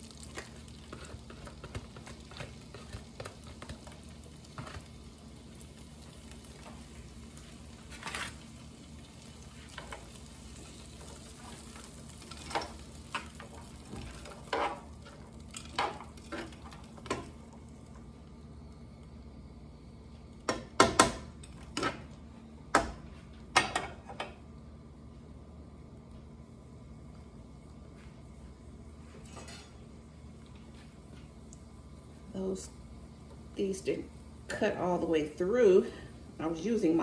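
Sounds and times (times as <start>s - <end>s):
vegetables sizzling in a pan: 0.0s - 24.4s, 31.6s - 37.0s
metal tongs scraping a pan: 14.0s - 16.7s.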